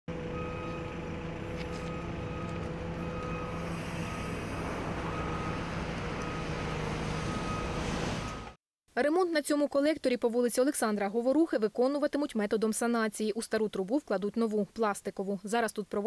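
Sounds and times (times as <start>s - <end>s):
diesel engine under load: 0.1s - 8.6s
reversing alarm beeping: 0.3s - 8.6s.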